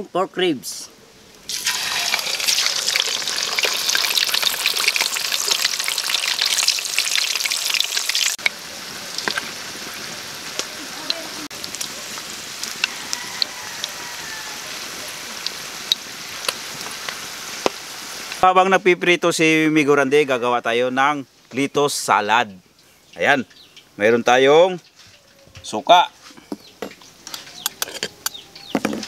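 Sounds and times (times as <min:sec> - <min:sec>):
meat sizzling in hot oil: 0:01.4 - 0:18.4.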